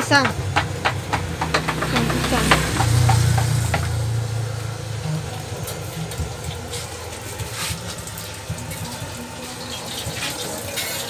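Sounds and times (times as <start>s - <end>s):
steady background noise: 0.0s - 11.0s
vehicle engine hum: 0.0s - 11.0s.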